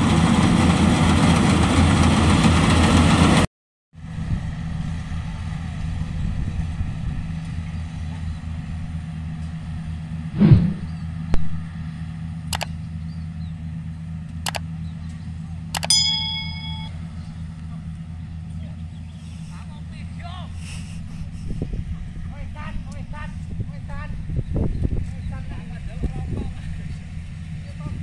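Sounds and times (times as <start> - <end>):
diesel engine droning: 4.0 - 28.0
brief loud sound: 10.4 - 11.0
sharp clicks: 12.5 - 12.8, 15.8 - 16.0.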